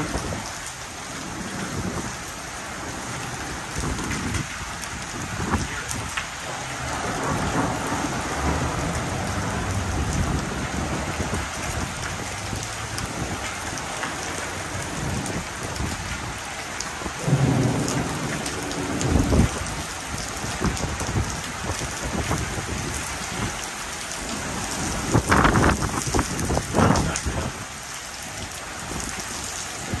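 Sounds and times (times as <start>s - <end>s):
steady rain: 0.0s - 30.0s
thunder rumbling: 3.0s - 16.4s, 17.0s - 23.6s
sharp thunder cracks: 17.2s - 19.8s.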